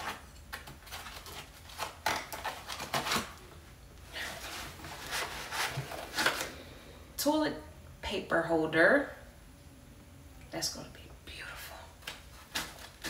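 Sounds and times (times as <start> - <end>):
cardboard box rustling and scraping: 4.3 - 6.4.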